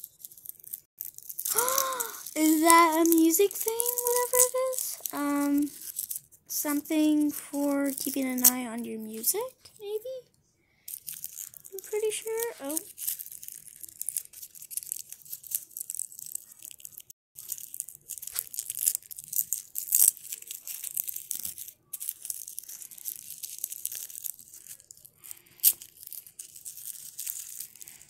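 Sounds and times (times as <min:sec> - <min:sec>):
plastic wrapping crinkling: 0:00.0 - 0:10.2, 0:10.9 - 0:28.0
plastic ripping sharply: 0:01.0 - 0:06.1.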